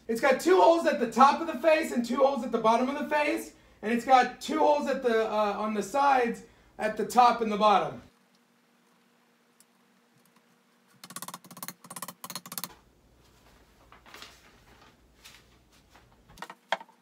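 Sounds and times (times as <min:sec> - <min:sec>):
paper rustling: 0:13.2 - 0:16.6.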